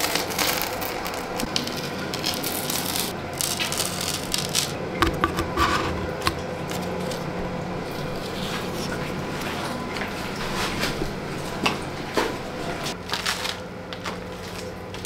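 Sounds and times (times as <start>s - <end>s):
steady low hum: 0.0s - 15.0s
fingertips tapping on plastic: 5.0s - 6.4s.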